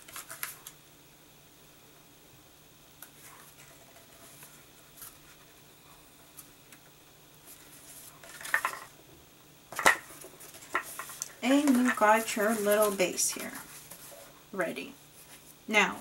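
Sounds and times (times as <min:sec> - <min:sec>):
paper rustling: 0:00.0 - 0:00.7, 0:03.0 - 0:05.6, 0:07.4 - 0:08.9, 0:09.8 - 0:14.4, 0:15.2 - 0:15.6.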